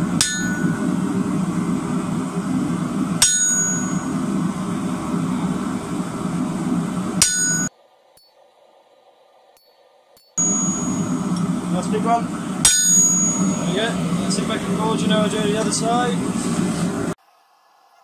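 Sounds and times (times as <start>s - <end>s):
loud steady low noise: 0.0s - 7.7s, 10.4s - 17.2s
hammer striking chisel on metal: 0.2s - 0.8s, 3.2s - 4.0s, 7.2s - 7.7s, 12.6s - 13.5s.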